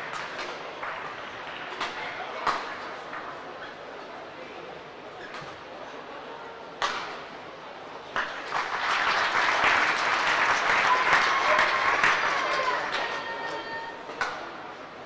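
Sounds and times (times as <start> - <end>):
racket hitting shuttlecock: 6.8 - 7.2
crowd applauding and cheering: 8.4 - 13.9.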